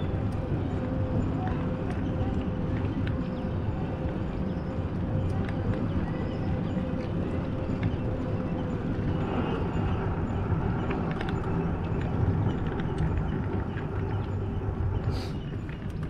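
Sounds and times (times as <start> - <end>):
road and wind noise: 0.0 - 16.0.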